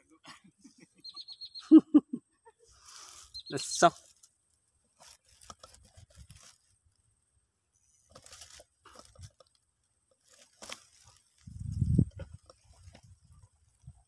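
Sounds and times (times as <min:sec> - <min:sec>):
faint crackles and rustles: 0:02.6 - 0:14.0.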